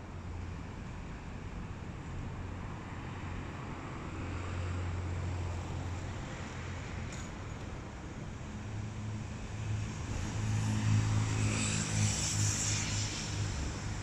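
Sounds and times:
vehicle passing on road: 0:09.3 - 0:14.0.

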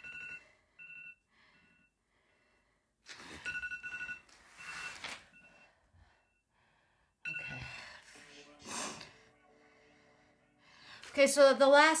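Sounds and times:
person breathing heavily: 0:05.6 - 0:11.1.

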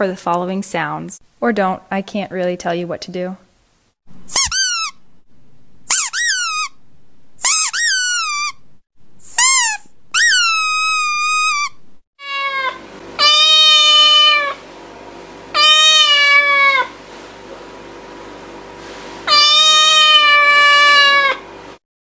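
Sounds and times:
cat meowing: 0:12.2 - 0:14.6, 0:15.6 - 0:16.9, 0:19.3 - 0:21.4.

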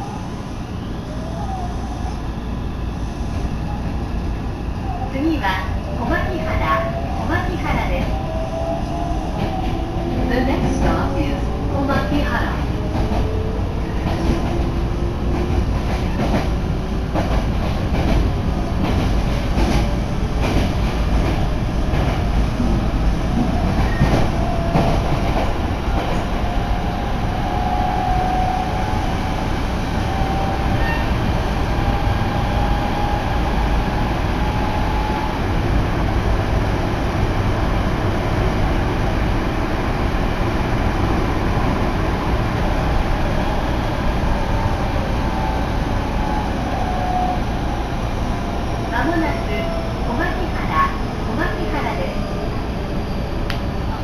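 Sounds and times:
train low rumble: 0:00.0 - 0:54.0
rail-joint clicks: 0:53.5 - 0:53.7.

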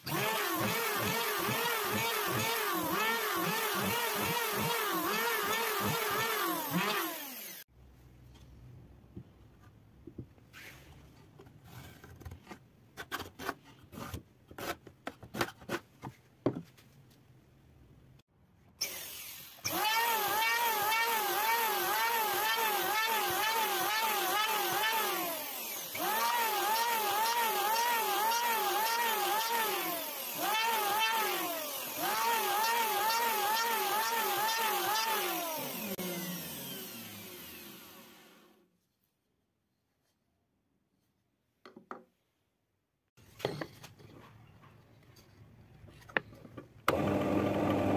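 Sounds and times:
electric hand planer whine: 0:20.6 - 0:38.5, 0:46.9 - 0:47.9.

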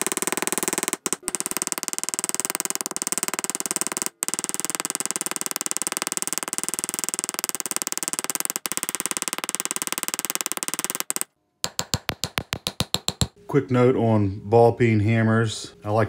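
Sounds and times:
hammer tapping rivets on anvil: 0:11.6 - 0:13.4.

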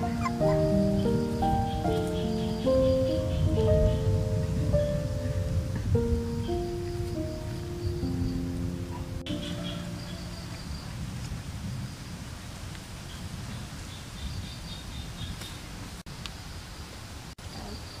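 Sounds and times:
guitar music: 0:00.0 - 0:10.3
steady low rumble: 0:00.0 - 0:13.6.

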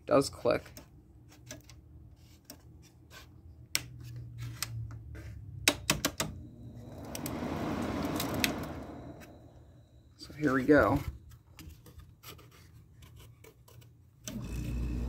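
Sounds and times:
air conditioner humming: 0:06.3 - 0:10.2
broad rushing noise: 0:06.5 - 0:10.0.

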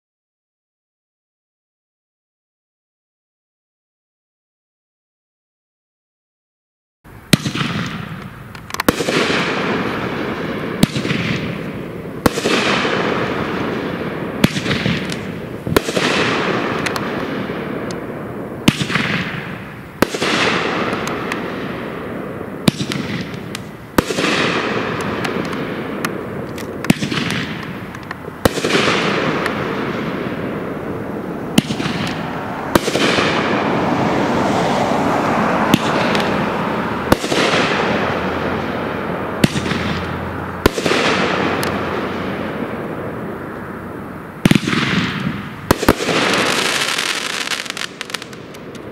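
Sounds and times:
firework bangs: 0:07.3 - 0:48.9
firework hiss: 0:44.4 - 0:48.9.

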